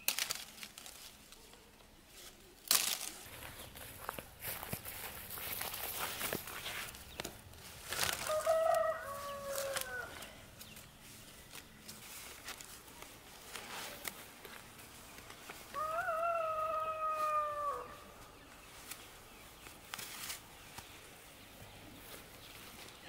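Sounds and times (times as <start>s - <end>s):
faint clicks and rustles: 0.1s - 15.8s
rooster crowing: 8.1s - 10.3s, 15.7s - 18.2s.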